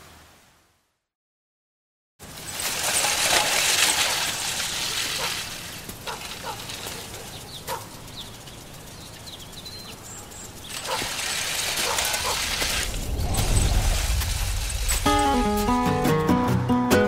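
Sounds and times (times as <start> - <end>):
bird chirps: 7.1 - 10.9
low hum: 12.1 - 16.6.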